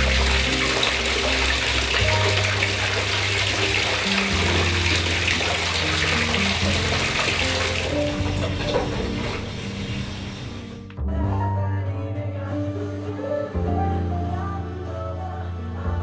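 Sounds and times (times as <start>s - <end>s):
bath tap running into bathtub: 0.0s - 10.9s
background music with low notes: 0.0s - 16.0s.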